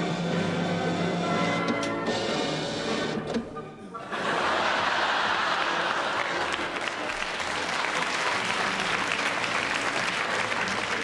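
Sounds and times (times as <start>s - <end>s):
audience laughing: 3.9s - 11.0s
audience clapping: 4.2s - 11.0s.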